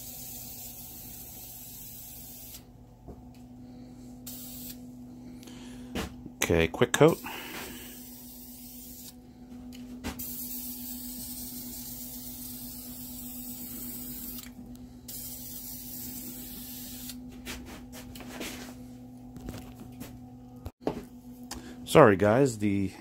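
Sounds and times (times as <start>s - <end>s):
spray-paint can hissing: 0.0s - 2.7s, 4.3s - 4.8s, 8.0s - 9.2s, 10.2s - 14.5s, 15.1s - 17.2s
steady low hum: 0.0s - 23.0s.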